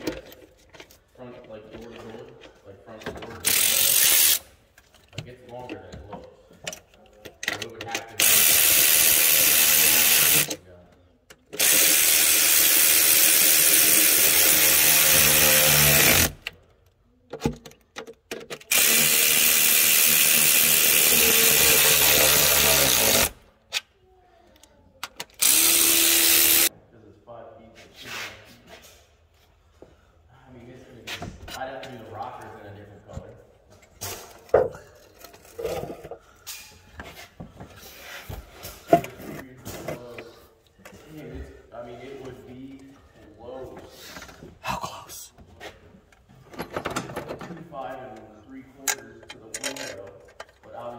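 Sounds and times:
power tool spinning a bolt: 3.4 - 4.5, 8.2 - 10.6, 11.6 - 16.4, 18.7 - 23.4, 25.4 - 26.7.

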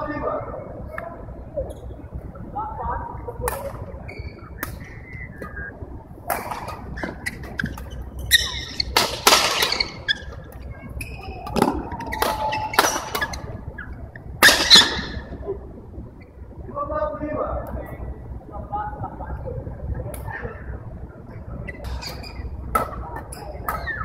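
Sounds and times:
shoes squeaking on court floor: 4.0 - 5.6, 6.5 - 15.2, 21.7 - 22.6.

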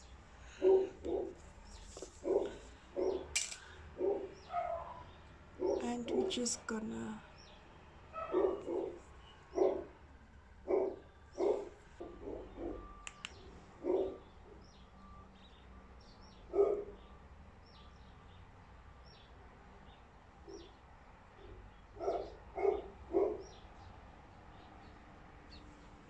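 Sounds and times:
dog barking: 0.6 - 1.4, 2.2 - 3.3, 4.0 - 6.3, 8.1 - 10.0, 10.7 - 12.9, 13.8 - 14.3, 16.5 - 17.0, 20.5 - 20.7, 21.4 - 23.6.

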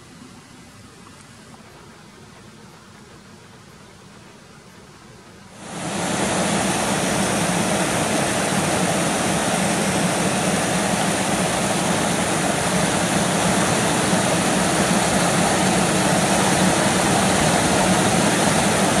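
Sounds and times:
water rushing over rock ledges: 5.6 - 19.0.

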